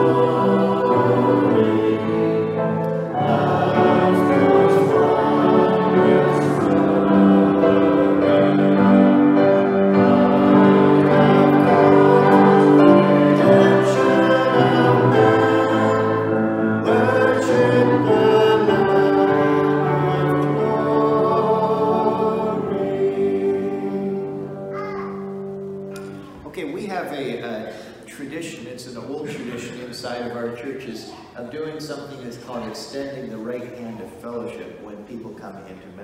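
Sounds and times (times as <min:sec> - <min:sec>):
congregation singing: 0:00.0 - 0:26.4.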